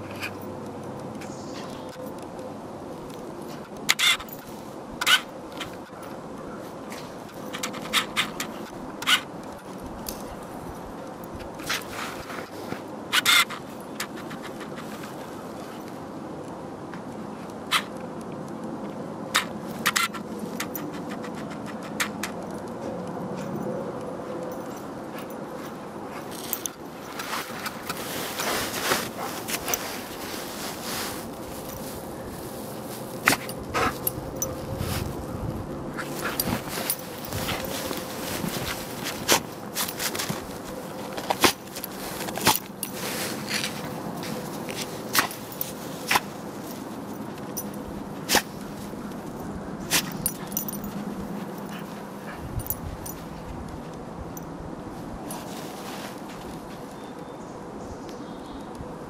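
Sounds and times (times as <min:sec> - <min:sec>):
footsteps in snow: 0:24.3 - 0:57.2.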